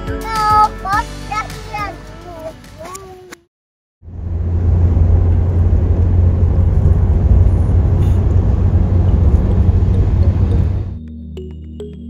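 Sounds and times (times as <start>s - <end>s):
low rumble: 4.0s - 11.0s.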